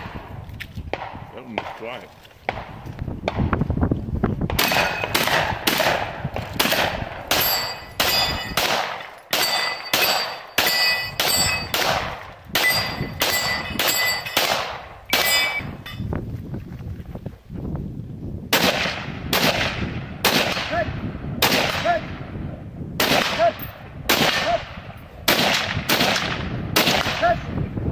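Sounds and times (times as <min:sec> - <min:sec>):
pistol shots: 0:00.9 - 0:03.5, 0:04.5 - 0:15.6, 0:18.5 - 0:20.8, 0:21.4 - 0:22.2, 0:23.0 - 0:27.4
steel targets ringing: 0:07.3 - 0:08.7, 0:09.3 - 0:11.8, 0:12.6 - 0:14.5, 0:15.1 - 0:16.1.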